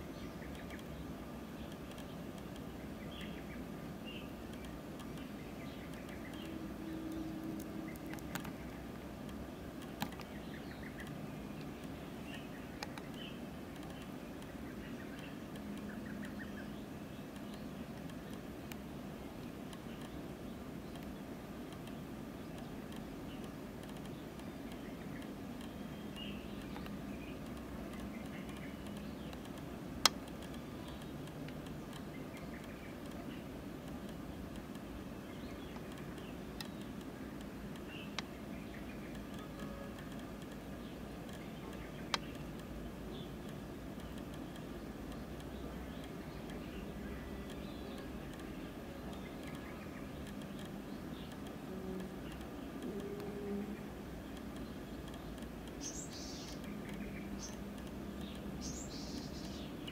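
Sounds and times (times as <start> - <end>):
faint bird chirps: 0.0 - 18.8, 19.4 - 59.9
faint ticks: 0.0 - 59.9
low background hum: 0.0 - 59.9
sharp clicks: 0.1 - 59.9
faint high chirps: 37.8 - 42.5.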